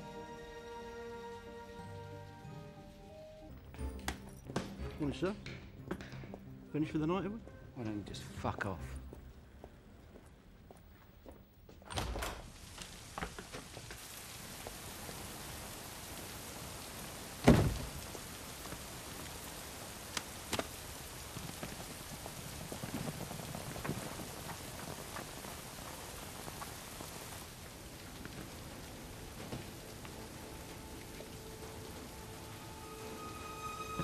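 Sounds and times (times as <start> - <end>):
steady rain: 0.0 - 4.0, 12.0 - 34.0.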